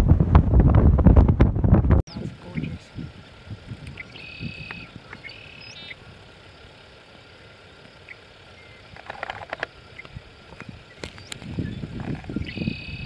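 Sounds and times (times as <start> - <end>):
low wind rumble: 0.0 - 13.0
high bird chirp: 2.1 - 6.0, 10.8 - 13.0
crisp crackling clicks: 8.9 - 12.4.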